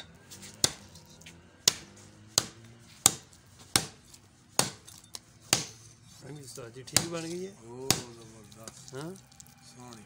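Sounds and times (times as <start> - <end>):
cleaver chopping on wooden block: 0.5 - 0.9, 1.6 - 5.8, 6.9 - 7.2, 7.8 - 8.2.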